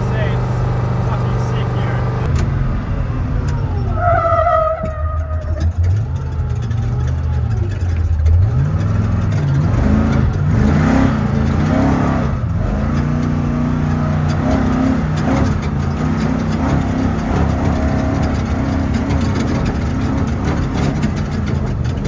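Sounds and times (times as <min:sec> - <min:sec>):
road and tyre noise: 0:00.0 - 0:22.0
truck engine running: 0:00.0 - 0:22.0.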